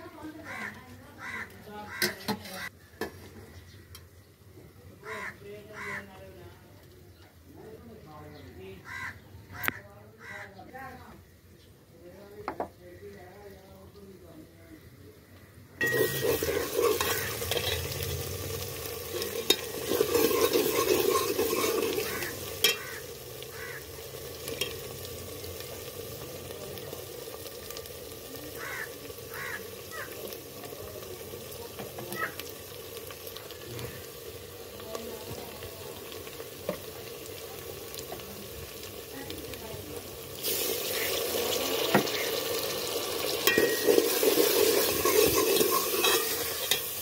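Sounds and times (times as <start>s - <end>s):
ladle scraping pot: 2.0s - 2.7s, 15.8s - 18.2s, 18.8s - 23.1s, 43.3s - 47.0s
onions sizzling in oil: 15.4s - 47.0s
oil popping: 15.8s - 47.0s.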